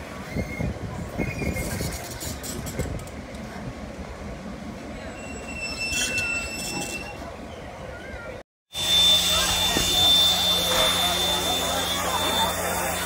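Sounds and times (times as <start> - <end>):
train wheels rumbling on rails: 0.0 - 8.2, 8.8 - 13.0
high squeal: 5.1 - 7.3, 8.8 - 13.0.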